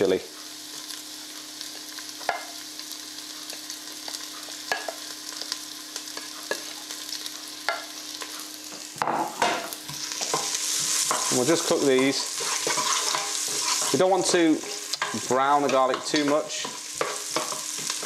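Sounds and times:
food sizzling in hot oil: 0:00.0 - 0:18.0
wooden spatula scraping plate: 0:12.4 - 0:14.0.

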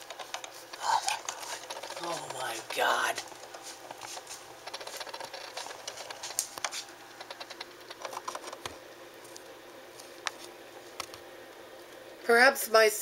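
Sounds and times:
animal scratching inside a wall: 0:00.1 - 0:08.6.

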